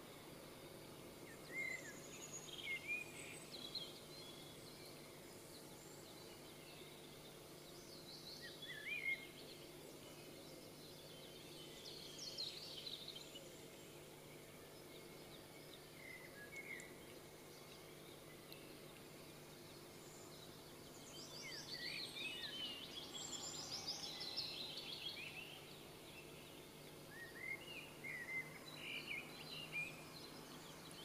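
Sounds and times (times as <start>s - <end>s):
faint low hum: 0.0s - 31.0s
songbirds chirping: 0.0s - 31.0s.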